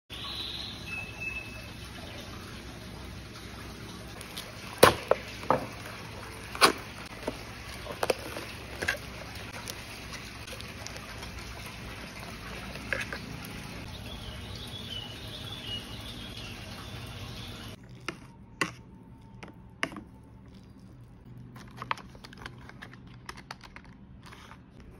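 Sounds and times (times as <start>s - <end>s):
plastic packaging clicks and crinkles: 21.3s - 24.9s.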